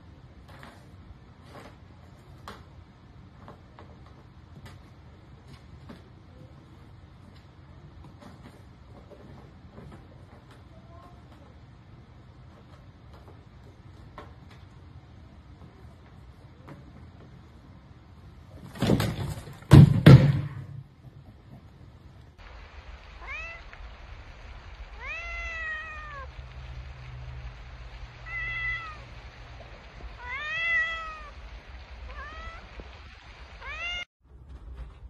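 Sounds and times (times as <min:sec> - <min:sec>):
plastic tub crashing down: 0:18.6 - 0:20.9
cat meowing: 0:23.2 - 0:23.8, 0:25.0 - 0:26.3, 0:28.2 - 0:29.1, 0:30.1 - 0:31.4, 0:32.1 - 0:32.9, 0:33.6 - 0:34.1.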